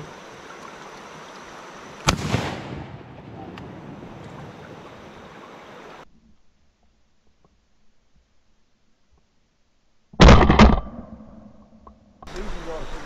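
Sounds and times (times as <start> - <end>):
river water rushing: 0.0 - 2.1, 3.8 - 6.0
shotgun shot echoing: 2.0 - 4.0.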